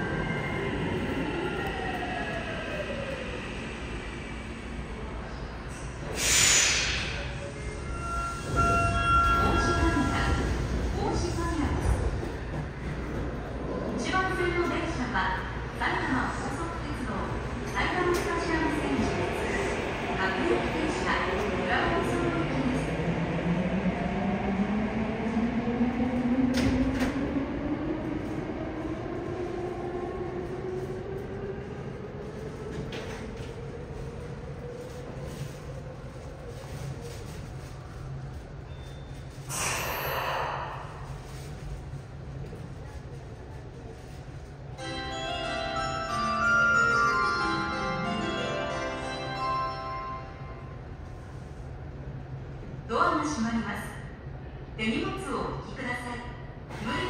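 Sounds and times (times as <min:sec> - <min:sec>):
train air brakes hissing: 0:06.0 - 0:07.6, 0:39.5 - 0:41.2.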